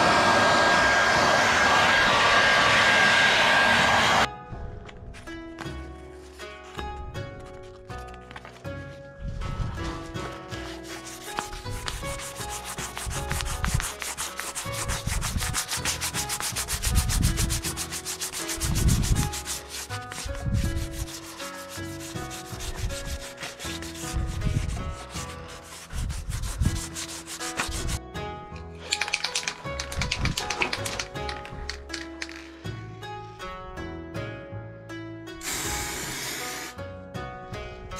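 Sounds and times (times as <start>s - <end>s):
sanding sponge scuffing paint: 9.6s - 28.0s.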